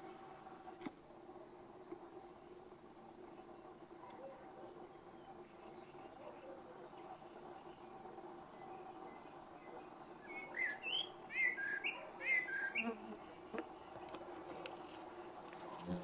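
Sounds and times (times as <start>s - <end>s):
blackbird singing: 10.2s - 13.0s.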